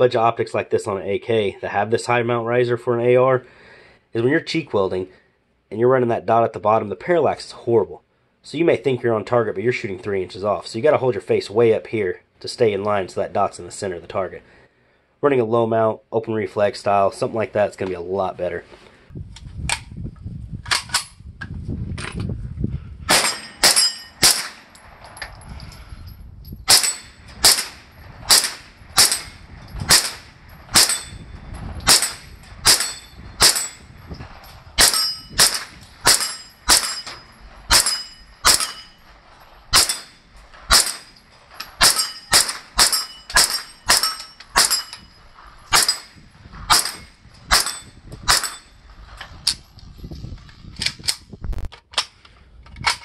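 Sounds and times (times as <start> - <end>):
pistol shots: 23.1 - 24.7, 26.7 - 31.2, 31.8 - 33.9, 34.8 - 39.0, 39.7 - 41.2, 41.8 - 44.9, 45.7 - 46.1, 46.7 - 48.7
metallic ring of steel target: 23.1 - 50.2.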